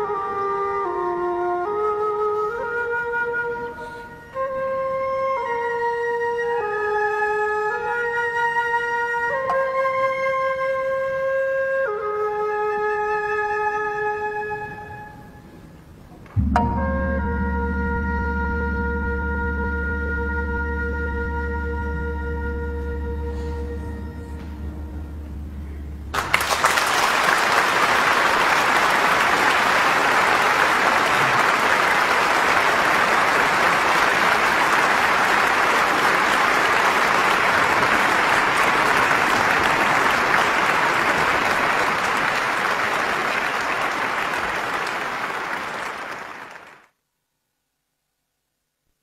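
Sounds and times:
bamboo flute held note: 16.4s - 26.1s
audience applause: 26.1s - 46.9s.

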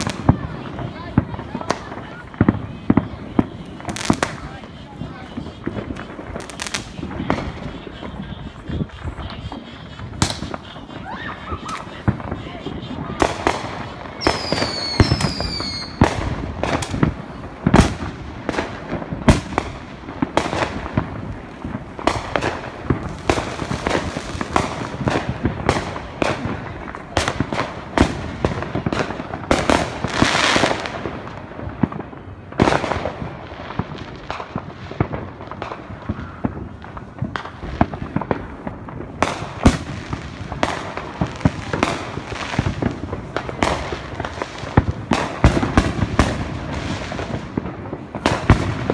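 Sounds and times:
fireworks bangs and pops: 0.0s - 48.9s
falling firework whistle: 14.2s - 16.0s.

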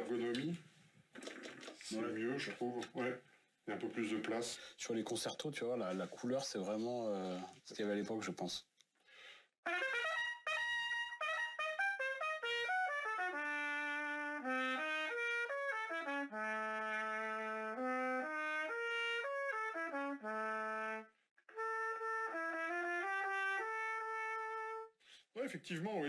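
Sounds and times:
solo trumpet playing: 9.7s - 25.0s.

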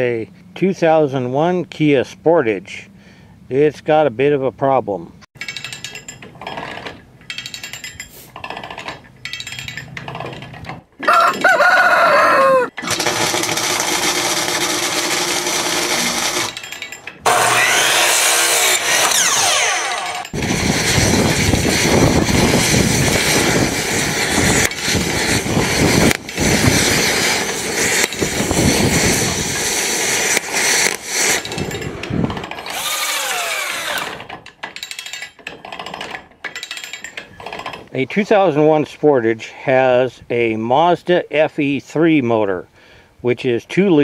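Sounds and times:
rooster crowing: 11.0s - 12.8s
chop saw cutting wood: 12.8s - 16.6s, 17.2s - 31.8s, 32.4s - 34.3s
metal grinding: 12.8s - 37.9s.

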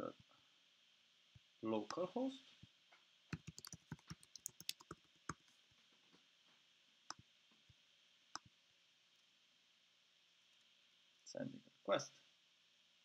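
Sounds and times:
keyboard typing: 3.4s - 5.5s.

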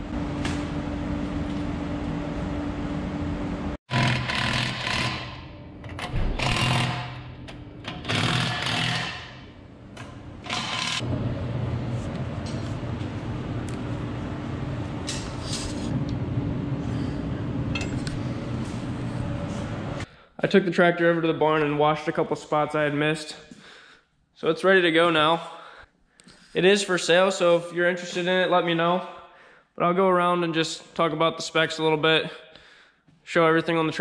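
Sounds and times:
low machine hum: 0.0s - 3.8s, 9.4s - 20.1s
impact wrench running: 3.9s - 9.5s, 10.4s - 11.1s.

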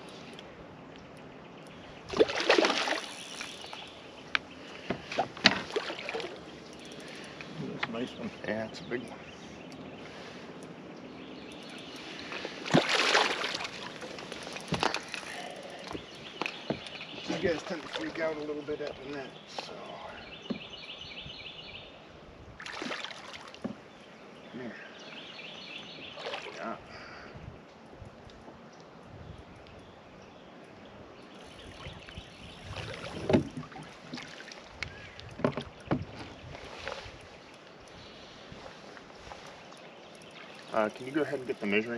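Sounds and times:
fish splashing at surface: 2.1s - 3.7s, 12.7s - 14.1s
fish splashing in water: 2.1s - 3.9s, 12.1s - 16.1s, 22.6s - 23.6s.

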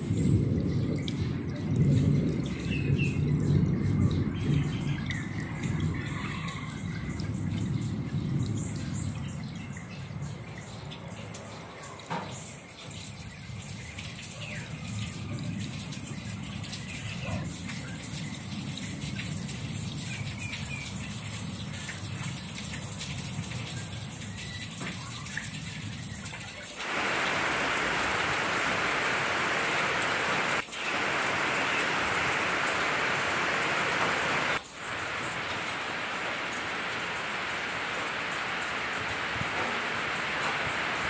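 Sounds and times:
heavy rain hiss: 0.0s - 10.4s, 26.7s - 41.0s
rain falling: 0.0s - 41.0s.

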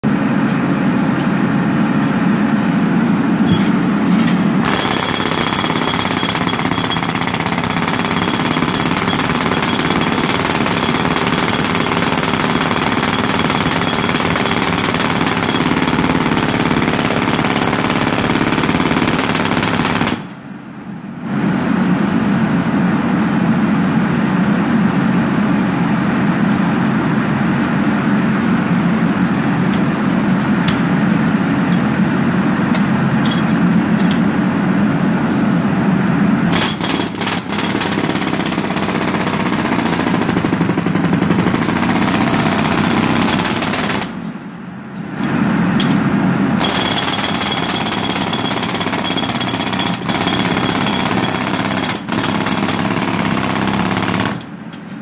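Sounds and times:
jackhammer hammering concrete: 4.6s - 20.2s, 36.5s - 44.1s, 46.6s - 54.5s.

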